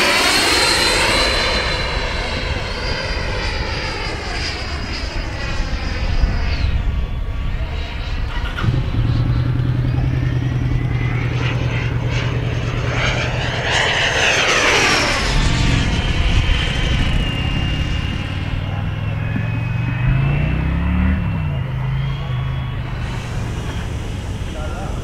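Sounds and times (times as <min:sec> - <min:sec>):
model jet fan whining: 0:08.2 - 0:25.0
steady low hum: 0:08.3 - 0:25.0.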